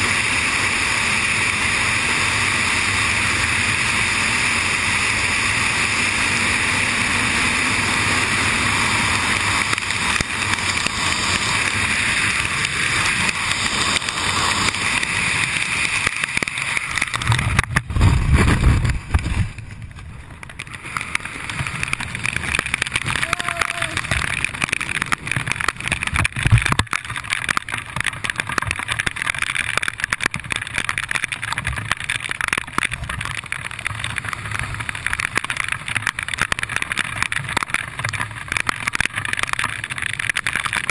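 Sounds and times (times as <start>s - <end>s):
wind rushing over camera: 6.4s - 40.9s
parachute opening buffeting: 7.9s - 26.6s.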